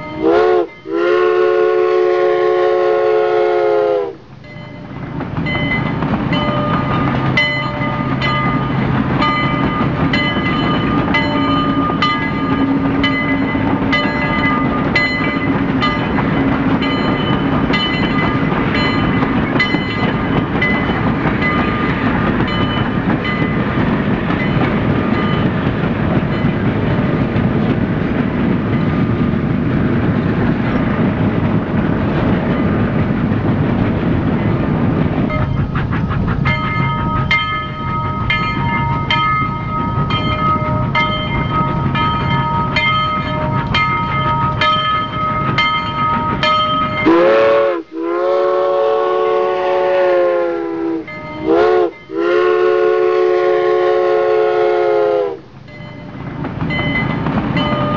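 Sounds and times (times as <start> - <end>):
train horn blasts: 0.0 - 4.3, 47.0 - 55.5
train rumbling: 0.0 - 57.9
wheels clacking over rail joints: 4.3 - 47.6, 55.5 - 57.9.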